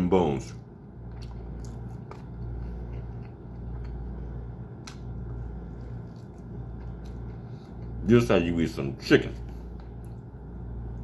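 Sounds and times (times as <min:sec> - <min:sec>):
steady low hum: 0:00.0 - 0:11.0
chewing: 0:01.0 - 0:04.2, 0:05.7 - 0:08.0.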